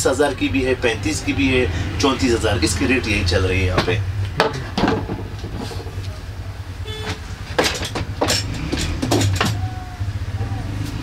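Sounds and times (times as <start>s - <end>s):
short tone: 6.8s - 7.2s.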